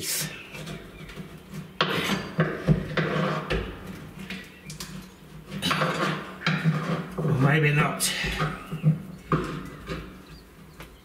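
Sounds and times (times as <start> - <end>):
metal scraping: 0.0 - 11.0.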